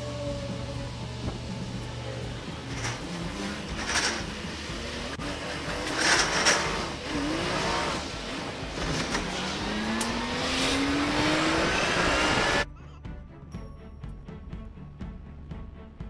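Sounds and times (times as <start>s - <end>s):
truck engine pulling through gear: 0.0s - 12.7s
road and wind noise: 0.8s - 12.7s.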